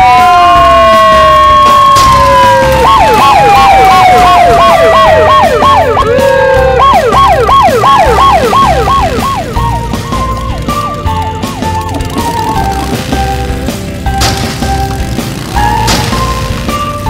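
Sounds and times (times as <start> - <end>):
fast wailing siren: 0.0 - 13.4.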